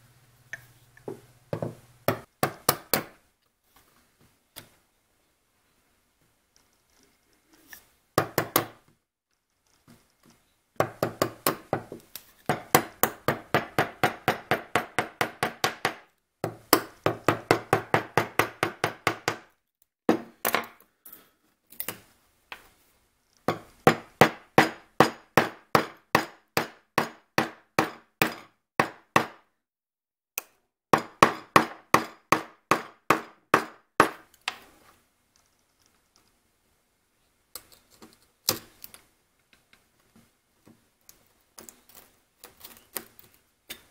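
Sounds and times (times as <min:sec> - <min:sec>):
mallet striking chisel: 0:02.1 - 0:03.2, 0:08.2 - 0:08.8, 0:12.5 - 0:19.5, 0:23.5 - 0:29.4, 0:31.0 - 0:34.2.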